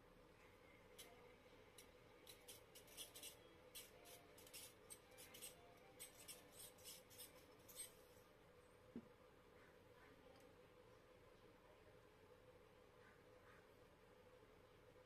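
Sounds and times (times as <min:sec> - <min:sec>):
fan motor bearings scratching: 0:00.9 - 0:08.2.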